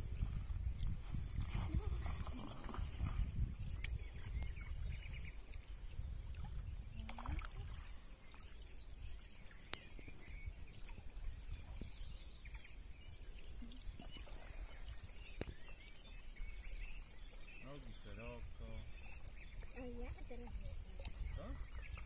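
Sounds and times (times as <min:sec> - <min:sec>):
paddle strokes: 0:00.0 - 0:04.6
water lapping: 0:00.0 - 0:22.0
wind rumble on microphone: 0:00.0 - 0:22.0.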